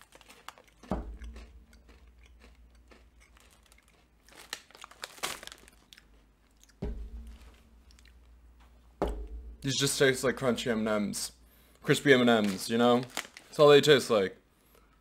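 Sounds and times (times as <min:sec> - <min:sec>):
candies crunching while chewed: 0:00.0 - 0:06.8, 0:12.4 - 0:13.6
dull thumps: 0:00.9 - 0:02.6, 0:06.8 - 0:11.5.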